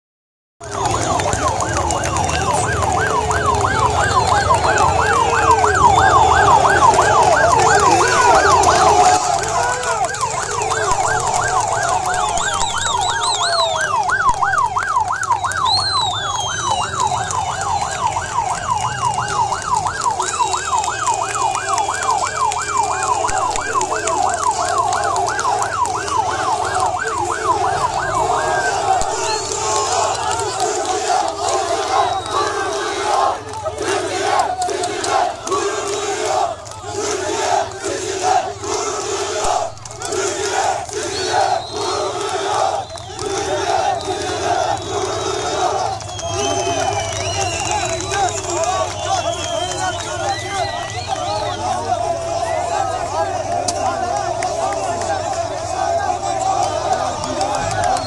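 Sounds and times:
crowd shouting: 0.6s - 58.0s
police siren yelping: 0.6s - 58.0s
high gliding whistles: 12.1s - 13.9s.

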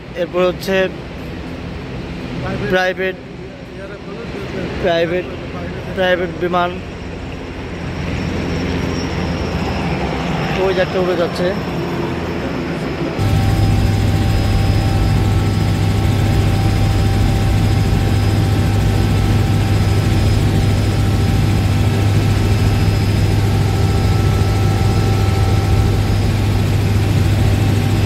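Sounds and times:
helicopter rotor and engine drone: 0.0s - 28.0s
faint steady whine: 12.7s - 28.0s.

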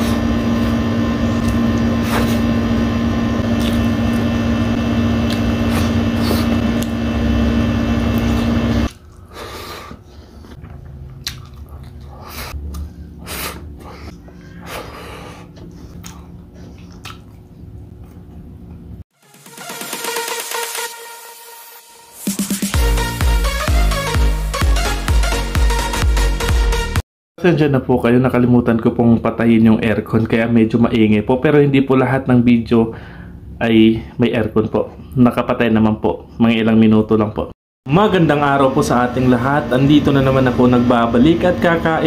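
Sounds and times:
air-conditioner hum: 0.0s - 19.0s, 27.4s - 42.0s
wet smacking eating sounds: 3.6s - 3.9s, 5.3s - 5.9s, 10.6s - 12.9s, 15.6s - 18.8s
chewing and mouth clicks: 10.5s - 13.0s, 15.6s - 18.8s.

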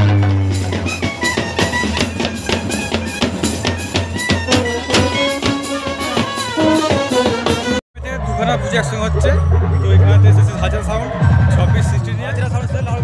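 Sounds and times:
loud music with drum beat: 0.0s - 7.8s.

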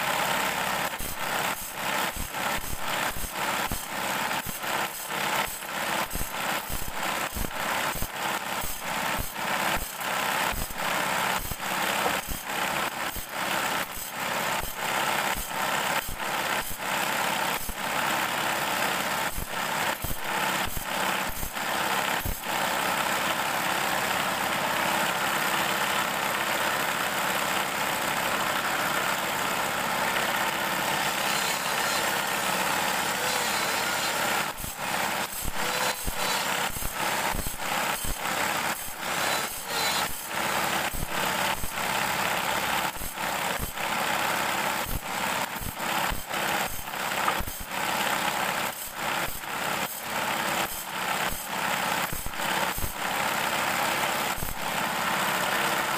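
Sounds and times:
saw blade grinding hiss: 30.8s - 41.7s.

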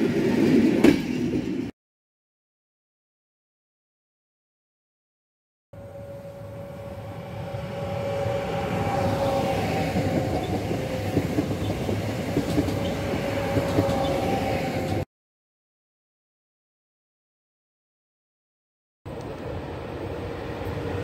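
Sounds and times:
train wheels rumbling on rails: 0.0s - 1.7s, 5.8s - 15.0s, 19.1s - 21.0s
wheels clicking over rail joints: 10.0s - 14.2s.

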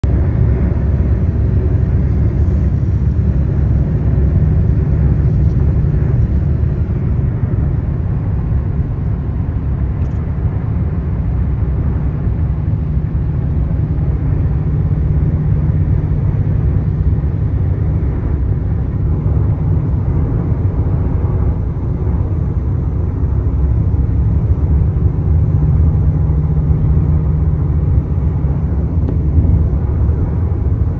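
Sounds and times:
car cabin road rumble: 0.0s - 30.9s.

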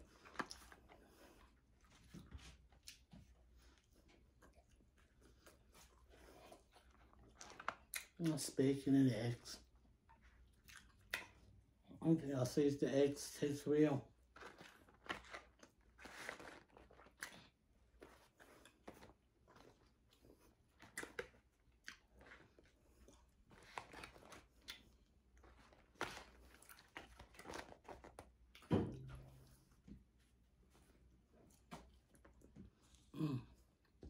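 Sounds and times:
chewing crunches: 0.0s - 8.4s, 10.1s - 11.6s, 14.3s - 29.1s.

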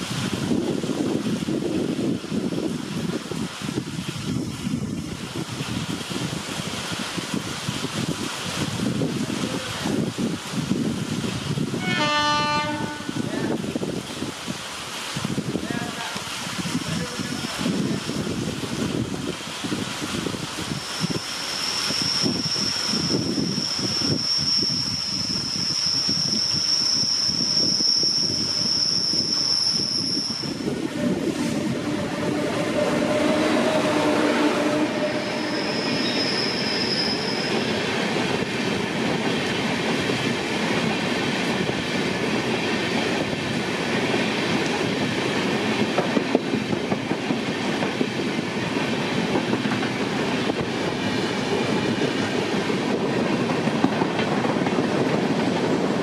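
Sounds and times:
train wheels rumbling on rails: 0.0s - 56.0s
high steady squeal: 20.8s - 37.9s.

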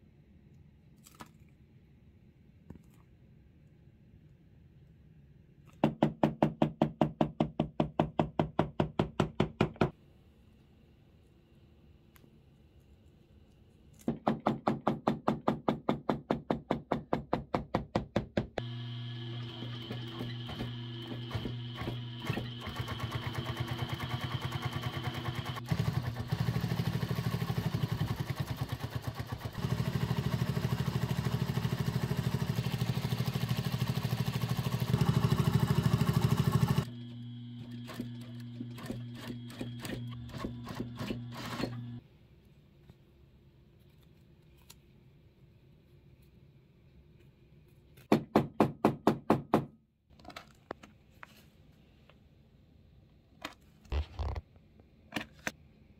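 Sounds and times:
industrial sewing machine stitching: 18.6s - 42.0s.

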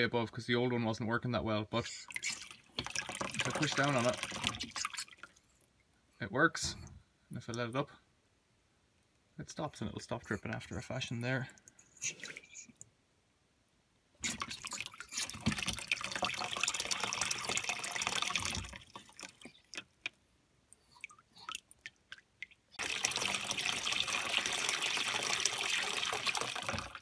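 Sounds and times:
water dripping: 1.9s - 6.0s, 14.2s - 27.0s
water rushing from float valve: 2.1s - 5.3s, 14.2s - 19.9s, 22.8s - 27.0s.

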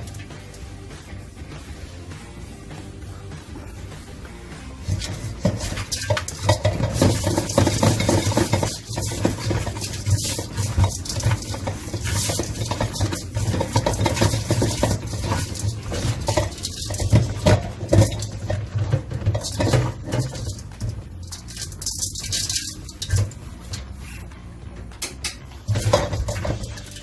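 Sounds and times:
colander clattering against bowl: 4.8s - 24.0s, 25.0s - 27.0s.

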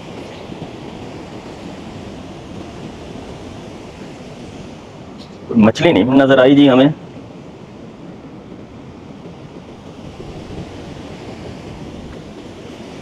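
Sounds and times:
sea surf washing at shore: 0.0s - 13.0s
wind noise on microphone: 9.3s - 13.0s.

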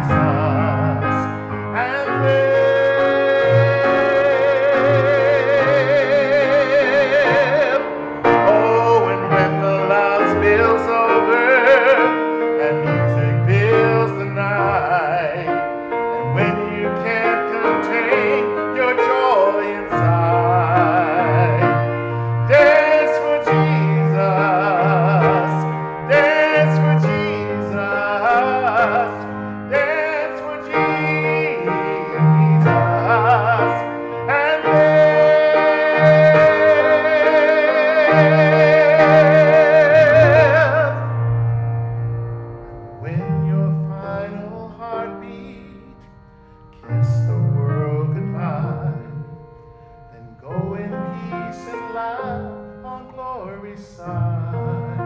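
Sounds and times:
man singing with vibrato: 0.0s - 41.6s, 42.9s - 46.2s, 46.8s - 55.0s
piano accompaniment: 0.0s - 55.0s.

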